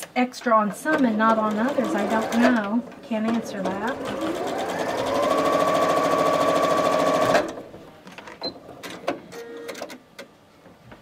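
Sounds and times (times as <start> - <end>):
sewing machine stitching: 0.8 - 7.7.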